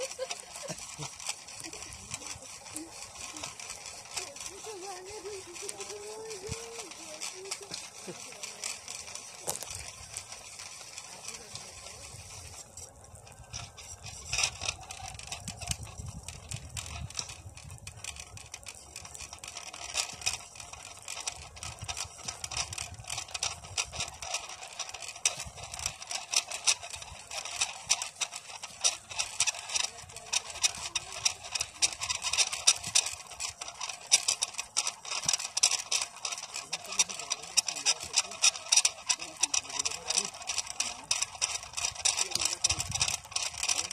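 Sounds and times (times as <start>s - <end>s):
winch rope rattling: 0.0s - 43.9s.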